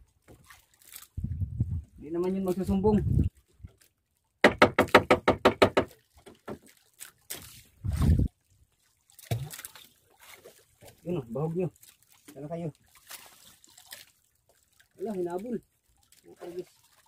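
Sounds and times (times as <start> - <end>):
knife chopping on wood: 4.4 - 5.9.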